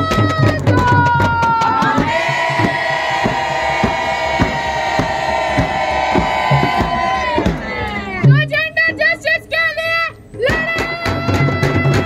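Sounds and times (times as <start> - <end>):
hand-beaten frame drums: 0.0 - 9.2, 10.4 - 12.0
protesters chanting: 0.8 - 8.1.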